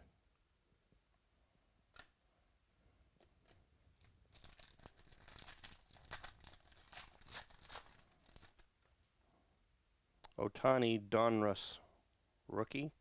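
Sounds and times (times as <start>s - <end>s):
foil wrapper crinkling: 4.3s - 8.7s.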